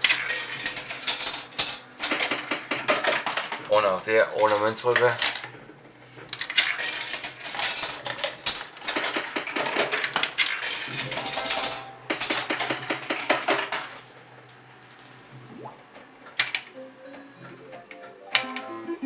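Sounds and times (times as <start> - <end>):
coins clattering into slot machine: 0.0 - 3.4, 6.4 - 13.9.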